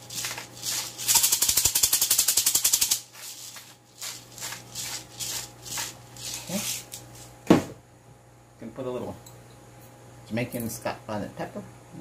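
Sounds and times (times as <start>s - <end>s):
pepper grinder ratcheting clicks: 0.1s - 3.0s.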